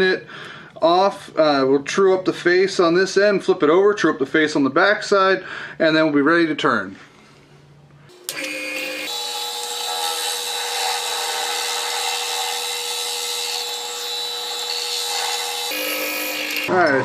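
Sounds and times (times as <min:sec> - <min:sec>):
lathe motor running: 0:08.1 - 0:16.8
trimmer grinding resin: 0:08.1 - 0:17.0.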